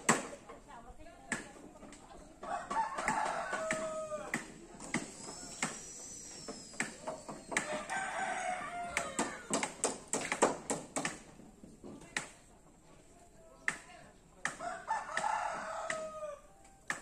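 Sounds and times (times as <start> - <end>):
roosters crowing: 2.4 - 4.4, 7.4 - 9.7, 14.6 - 16.9.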